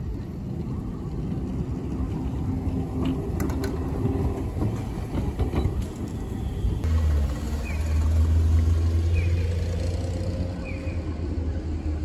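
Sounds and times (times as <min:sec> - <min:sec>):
wheels clicking and knocking on rails: 0:00.0 - 0:07.8
streetcar rumbling past: 0:00.0 - 0:12.0.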